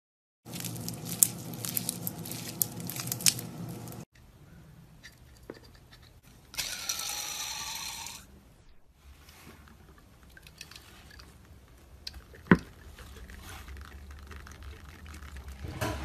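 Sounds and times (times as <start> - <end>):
slime crackling and popping: 0.5 - 4.0
fidget spinner whirring: 5.0 - 8.4.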